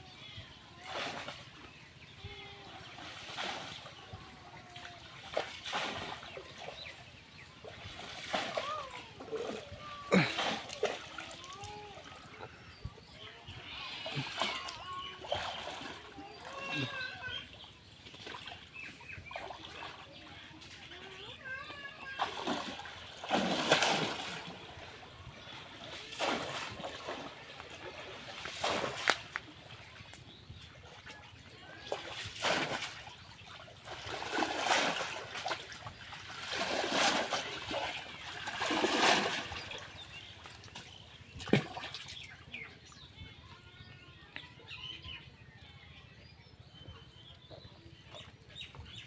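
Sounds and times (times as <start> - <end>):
pond water splashing and sloshing: 0.0 - 49.0
sharp water slaps: 4.7 - 6.8, 7.9 - 11.7, 22.1 - 24.7, 26.0 - 30.3, 31.8 - 42.3.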